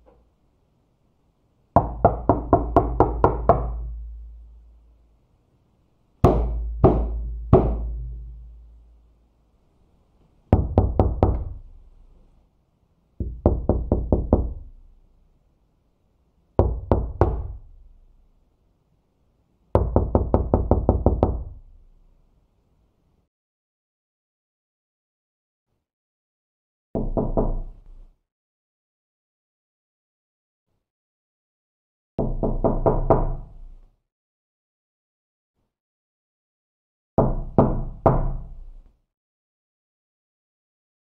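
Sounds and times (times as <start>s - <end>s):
knocking on a door: 1.8s - 4.3s, 6.2s - 8.6s, 10.5s - 11.7s, 13.2s - 14.7s, 16.6s - 17.7s, 19.8s - 21.6s, 27.0s - 27.6s, 32.2s - 33.4s, 37.2s - 38.5s.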